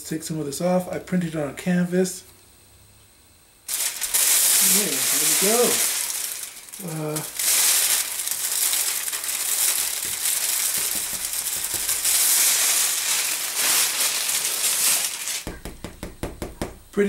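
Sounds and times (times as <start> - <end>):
plastic shrink-wrap crinkling: 3.7 - 16.6.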